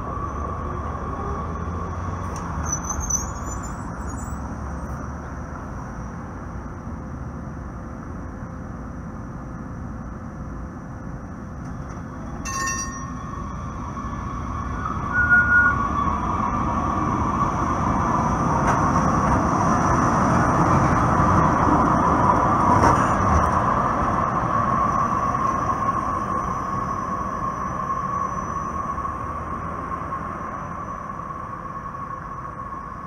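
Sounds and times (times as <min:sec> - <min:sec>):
train rumble: 0:00.0 - 0:33.0
train wheels squealing: 0:02.5 - 0:04.9, 0:12.3 - 0:17.6, 0:24.9 - 0:33.0
chime-like ding: 0:12.4 - 0:13.3.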